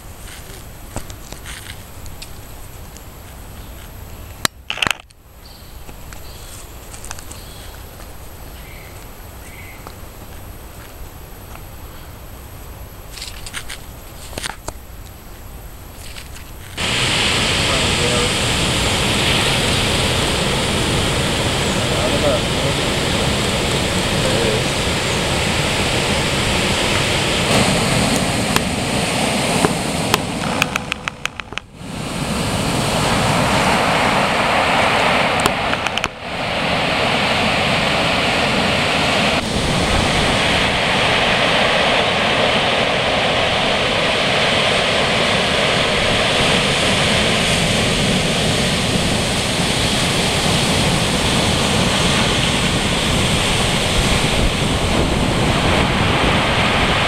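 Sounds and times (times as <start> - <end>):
ocean surf breaking: 16.7 - 57.0.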